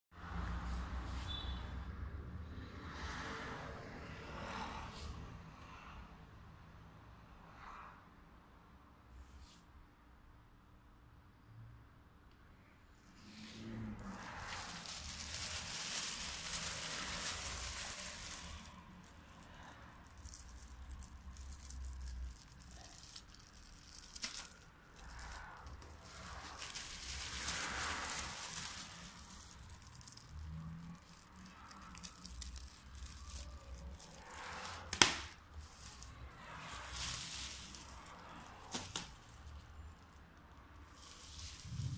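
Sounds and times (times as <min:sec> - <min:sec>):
plastic film crinkling: 0:13.9 - 0:41.9
plastic film snapping: 0:14.2 - 0:19.2, 0:20.1 - 0:30.3, 0:31.0 - 0:36.1, 0:36.7 - 0:39.7.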